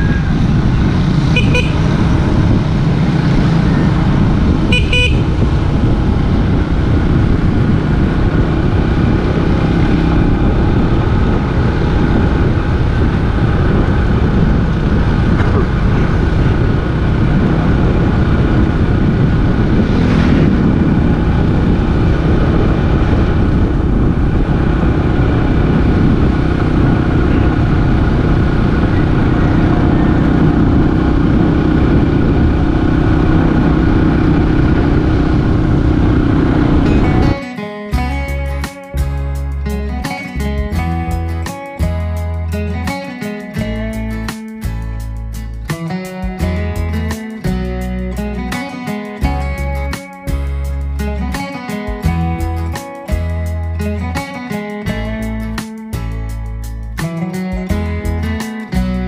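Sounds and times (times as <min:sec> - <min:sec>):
vehicle engine and wind noise: 0:00.0 - 0:59.0
short horn toots: 0:01.4 - 0:01.9, 0:04.7 - 0:05.4.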